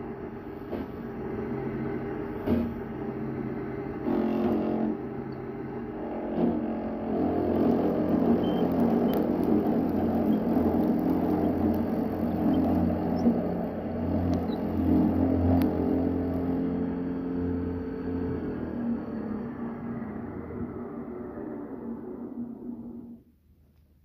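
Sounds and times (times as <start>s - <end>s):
drill motor hum: 1.0s - 21.5s
cutter chewing through wood: 6.4s - 16.8s.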